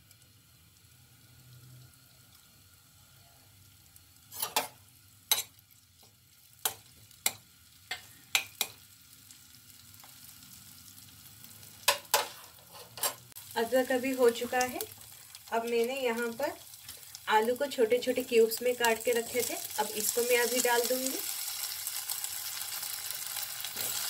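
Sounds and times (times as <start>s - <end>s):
faint sizzle in hot oil: 0.0s - 24.0s
spatula scraping a pan: 4.3s - 5.5s, 11.9s - 13.4s.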